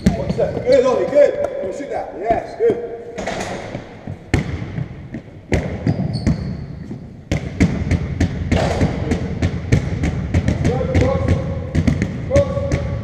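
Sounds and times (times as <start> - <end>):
basketball bouncing on wooden floor: 0.0 - 0.8, 3.7 - 13.0.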